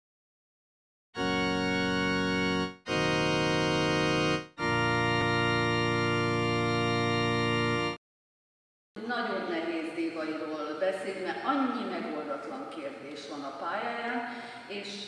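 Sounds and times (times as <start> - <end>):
organ playing held chords: 1.2 - 8.0.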